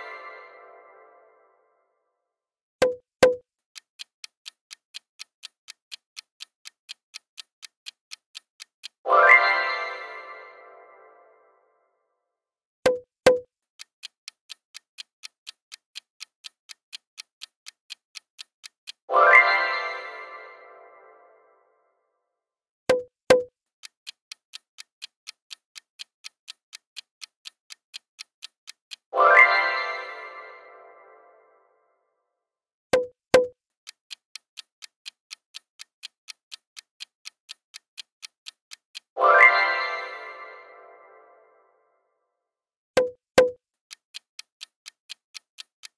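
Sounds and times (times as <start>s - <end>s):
clock ticking: 2.8s - 10.6s, 12.9s - 21.1s, 22.9s - 31.4s, 33.0s - 41.1s, 43.0s - 45.9s
musical chime: 29.2s - 31.4s, 39.2s - 41.5s.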